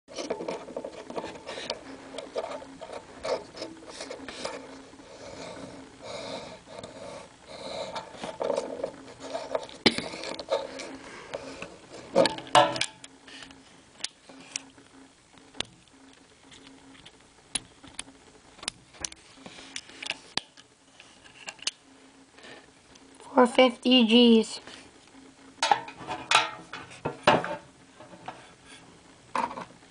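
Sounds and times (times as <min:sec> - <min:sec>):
rubbing handling noise: 0:00.1 - 0:14.7.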